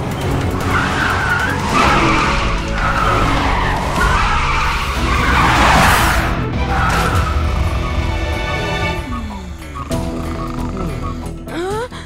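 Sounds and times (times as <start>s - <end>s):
cartoon tyres squealing: 0.2s - 11.9s.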